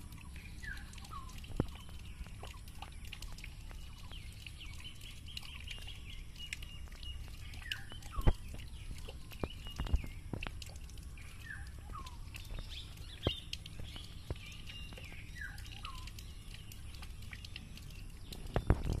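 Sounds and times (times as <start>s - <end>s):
birds chirping: 0.1s - 19.0s.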